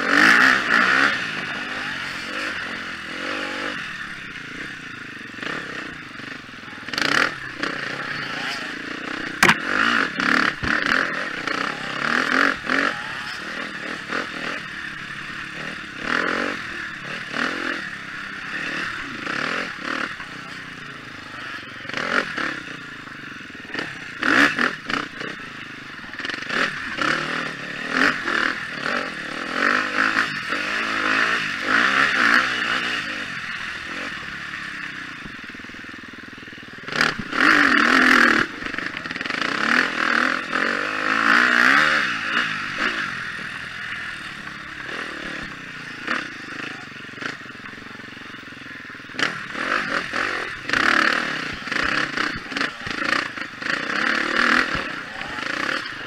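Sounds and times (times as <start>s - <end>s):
motorcycle engine revving: 0.0s - 56.0s
motorcycle clattering over bumps: 9.0s - 11.6s.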